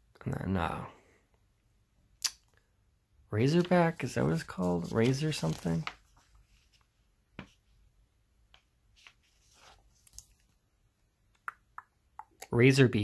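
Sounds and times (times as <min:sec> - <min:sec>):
paper pages rustling: 0:03.4 - 0:07.7, 0:08.5 - 0:10.6.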